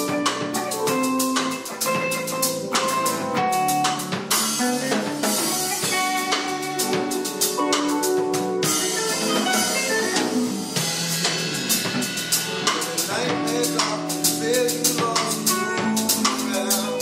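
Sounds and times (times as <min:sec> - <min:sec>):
drum kit: 0:00.0 - 0:17.0
electric guitar melody: 0:00.0 - 0:17.0
second electric guitar accompanying: 0:00.0 - 0:17.0.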